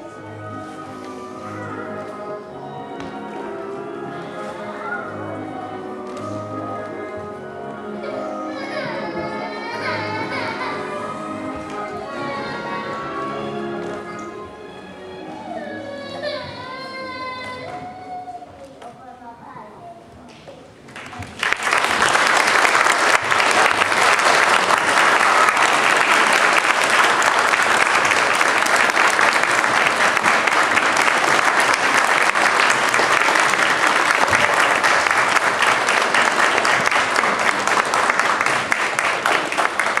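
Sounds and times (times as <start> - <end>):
crowd applauding: 20.9 - 40.0.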